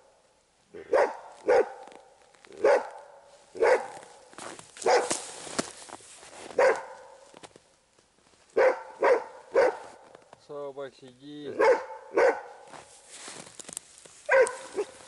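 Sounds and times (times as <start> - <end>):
dog barking: 0.7 - 2.0, 2.6 - 4.0, 4.8 - 5.2, 6.6 - 7.3, 8.6 - 10.0, 11.5 - 12.7, 14.3 - 15.0.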